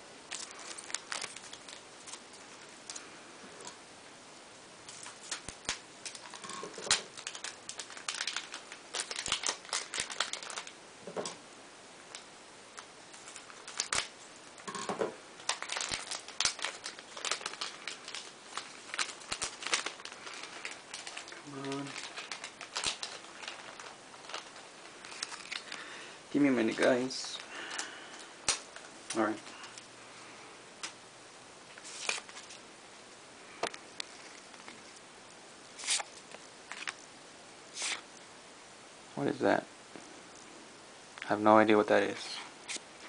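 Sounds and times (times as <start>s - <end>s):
foil wrappers crinkling: 0.3s - 3.8s, 4.9s - 10.8s, 12.1s - 14.8s, 15.4s - 29.9s, 31.7s - 32.6s, 35.8s - 37.0s, 37.7s - 38.1s.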